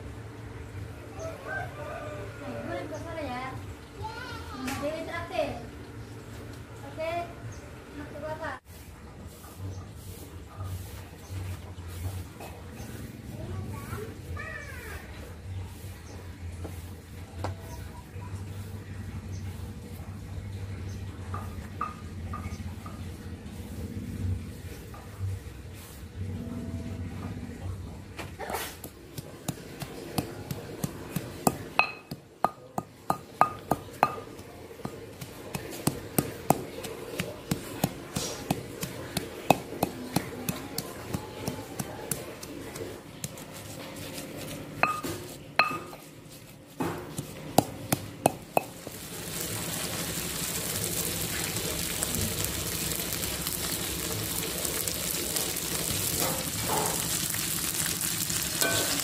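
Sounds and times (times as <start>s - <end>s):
paste sizzling in oil: 28.7s - 43.8s, 47.2s - 59.0s
stone pestle knocking in mortar: 28.8s - 43.8s, 44.8s - 46.1s, 46.8s - 48.8s.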